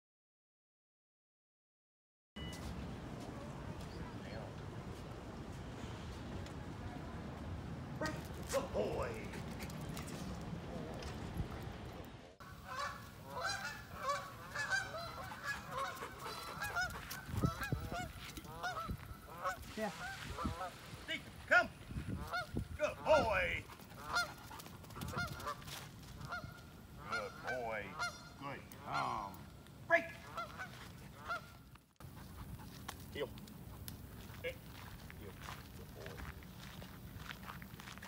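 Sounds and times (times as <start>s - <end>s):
geese honking: 12.4s - 21.0s, 22.1s - 32.6s.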